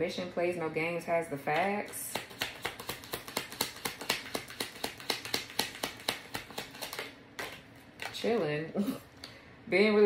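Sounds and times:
cards being shuffled: 2.1 - 8.3.

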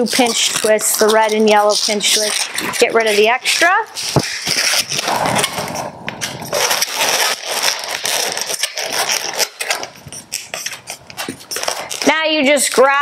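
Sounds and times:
balloons rubbing and squeaking: 0.0 - 13.0.

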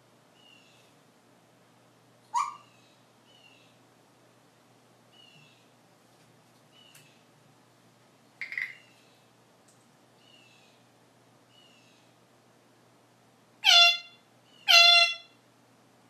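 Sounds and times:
parrot horn-like calls: 13.6 - 15.4.

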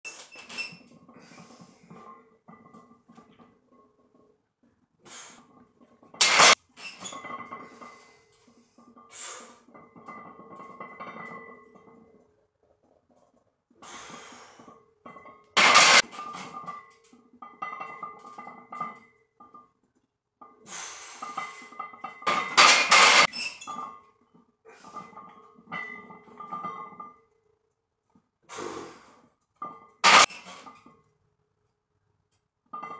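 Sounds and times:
barbell bench press bursts: 6.2 - 9.7, 15.6 - 16.5.

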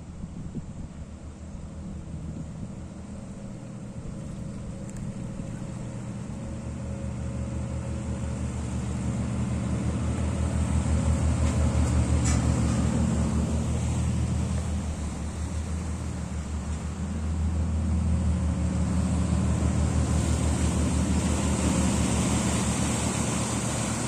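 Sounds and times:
barge diesel engine running: 1.0 - 24.0.

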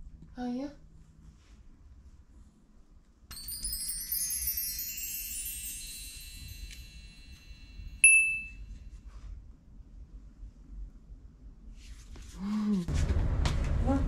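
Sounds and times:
shimmering high chime tones: 3.3 - 8.8
sharp bright ding: 6.4 - 8.6.

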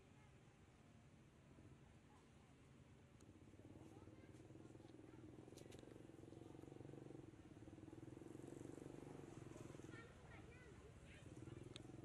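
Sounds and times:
faint clicks: 11.7 - 11.9.

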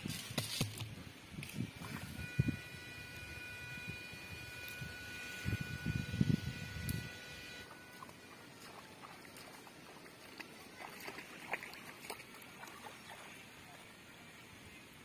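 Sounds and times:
rustling waterweed: 7.7 - 14.0
faint water splashes: 7.7 - 15.0.

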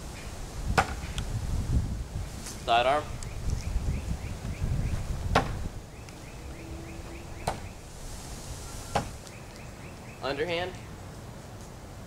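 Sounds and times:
faint high chirp: 5.9 - 7.8.

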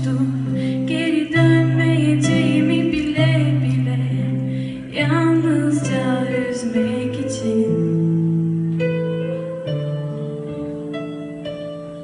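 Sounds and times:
woman singing: 0.0 - 8.4.

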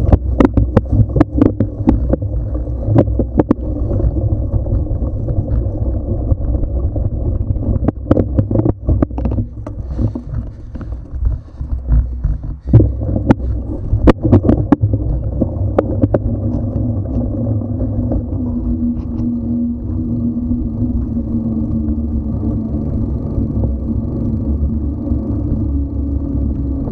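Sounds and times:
bike knocks and rattles: 0.0 - 19.4
tyres humming on asphalt: 0.0 - 26.9
wind and tyres rumbling: 0.0 - 26.9.

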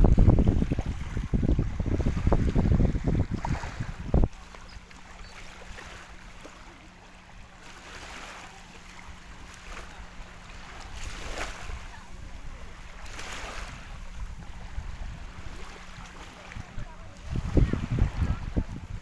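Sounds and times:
wind buffeting microphone: 0.0 - 4.8, 10.9 - 19.0
faint steady hum: 0.0 - 19.0
small waves lapping on shore: 0.0 - 19.0.

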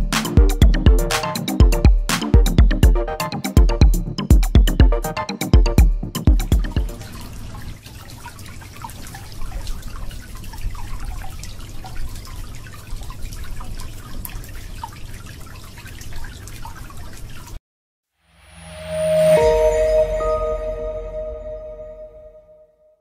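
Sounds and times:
water trickling and dripping: 6.0 - 17.6.

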